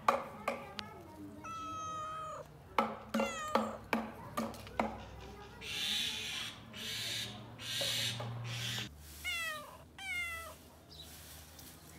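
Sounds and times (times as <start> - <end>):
cats meowing: 1.4 - 3.9, 9.2 - 10.6.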